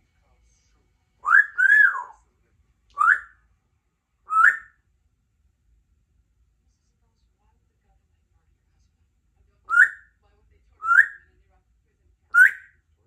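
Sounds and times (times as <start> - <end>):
parrot whistling: 1.2 - 2.2, 3.0 - 3.4, 4.3 - 4.8, 9.7 - 10.1, 10.8 - 11.2, 12.4 - 12.8.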